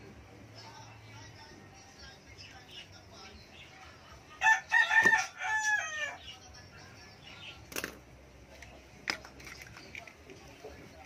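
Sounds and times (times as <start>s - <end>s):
rooster crowing: 4.4s - 6.2s.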